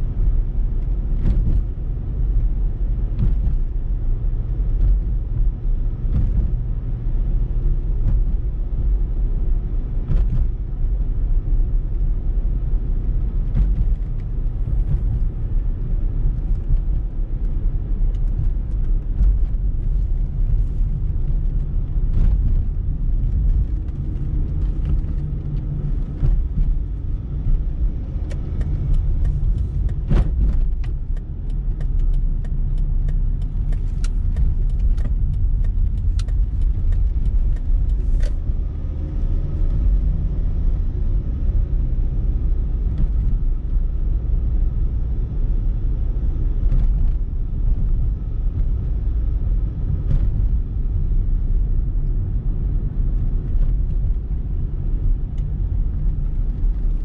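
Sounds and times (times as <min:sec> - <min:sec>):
car engine and tyres rumbling: 0:00.0 - 0:57.0
small clicks and rattles: 0:28.2 - 0:38.6.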